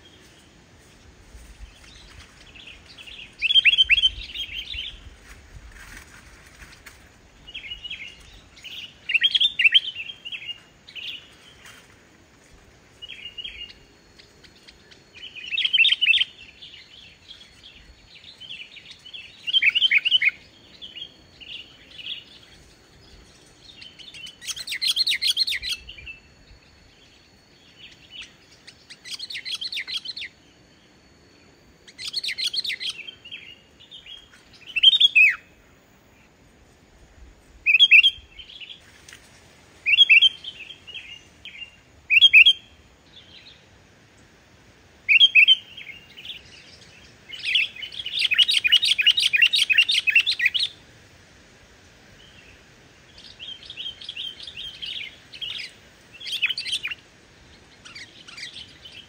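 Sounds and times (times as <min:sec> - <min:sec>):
bird singing whistled phrases: 0:03.3 - 0:05.0, 0:07.5 - 0:11.2, 0:14.6 - 0:16.9, 0:19.2 - 0:22.4, 0:23.8 - 0:26.4, 0:31.8 - 0:35.5, 0:37.7 - 0:38.5, 0:39.9 - 0:42.7, 0:45.1 - 0:46.5, 0:47.3 - 0:50.7.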